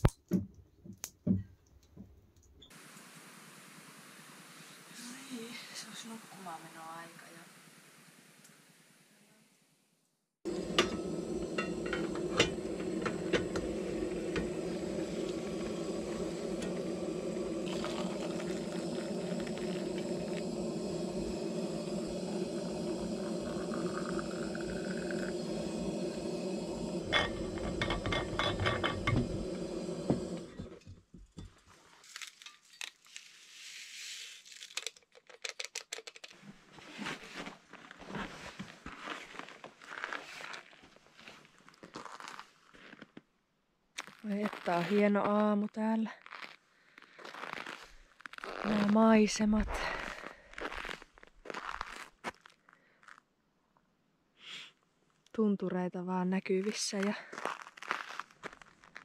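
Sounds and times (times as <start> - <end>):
metal pot clinking: 10.5 - 18.5, 27.0 - 29.8
water pouring into flask: 10.5 - 30.7
gas stove burner roaring: 10.5 - 30.8
rustles and crunches: 31.5 - 43.3, 44.0 - 53.3, 56.7 - 59.0.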